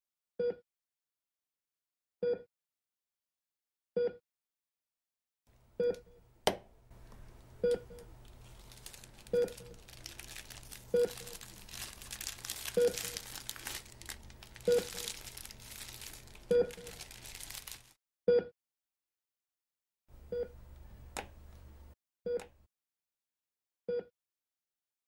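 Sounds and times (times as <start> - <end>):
crinkling and rustling: 7.0 - 18.0
patient monitor beeping: 7.6 - 8.1, 9.2 - 11.5, 12.6 - 17.2.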